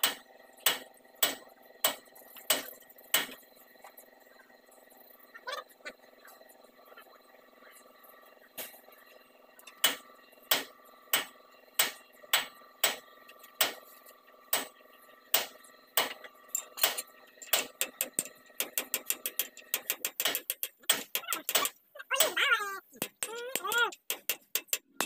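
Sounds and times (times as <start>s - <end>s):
hammer striking metal hub: 9.7s - 25.0s.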